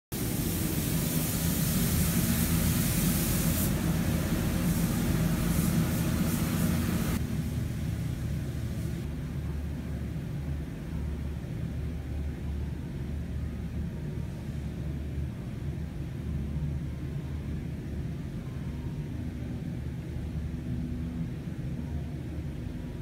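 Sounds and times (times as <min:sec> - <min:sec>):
paint spray guns hissing: 0:00.2 - 0:07.2
low machinery hum: 0:00.2 - 0:23.0.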